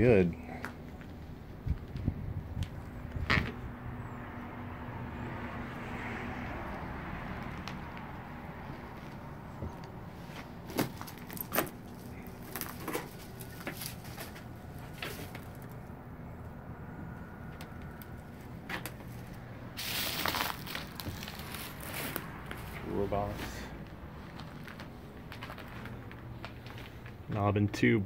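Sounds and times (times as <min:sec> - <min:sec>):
crunching scuff: 0:19.8 - 0:27.2
footsteps on creaking floorboards: 0:19.9 - 0:27.5.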